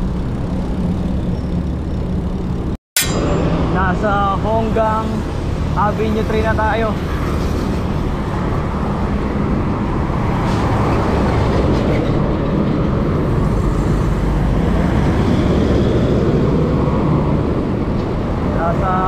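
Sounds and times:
road traffic noise: 0.0 - 19.0.

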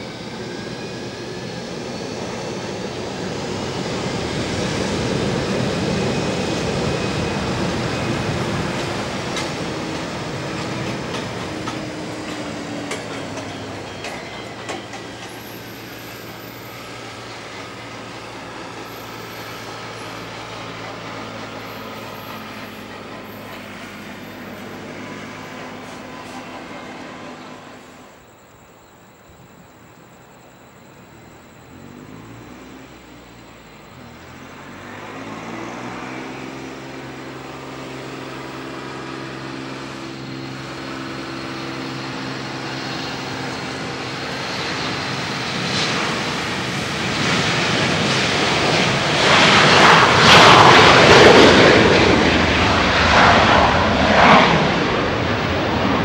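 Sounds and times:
jet engines taxiing: 0.0 - 56.0.

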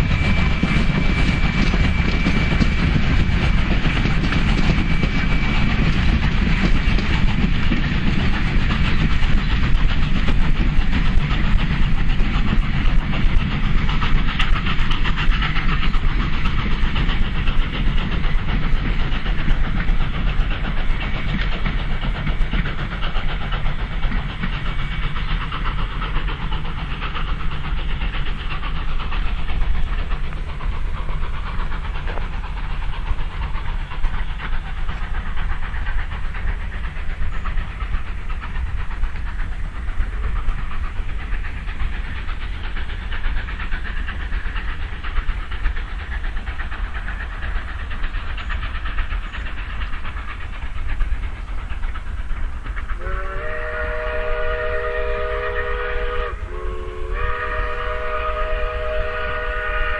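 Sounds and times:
steam locomotive rumble and hiss: 0.0 - 59.9
steam whistle chord: 53.0 - 59.9.

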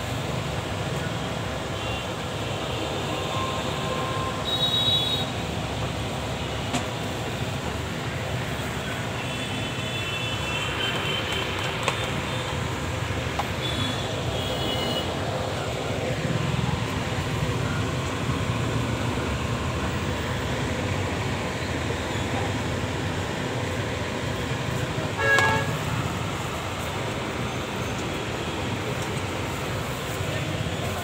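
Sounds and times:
street traffic rumble: 0.0 - 31.0
vehicle horn honking: 25.2 - 25.9.

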